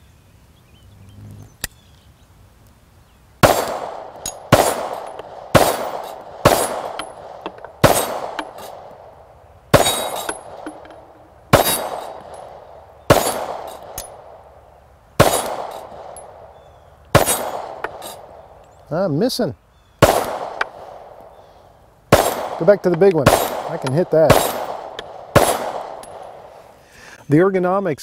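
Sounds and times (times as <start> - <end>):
pistol shots echoing: 3.4 - 9.1, 9.7 - 14.5, 15.2 - 18.4, 20.0 - 21.4, 22.1 - 26.5.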